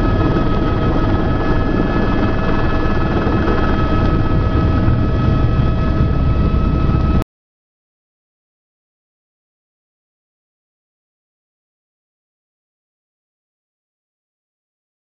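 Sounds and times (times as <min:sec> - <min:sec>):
mechanical rumble with high whine: 0:00.0 - 0:07.2.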